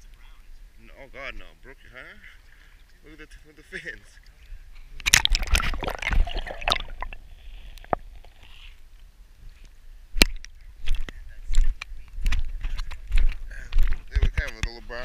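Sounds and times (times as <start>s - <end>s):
water sloshing: 4.1s - 8.8s.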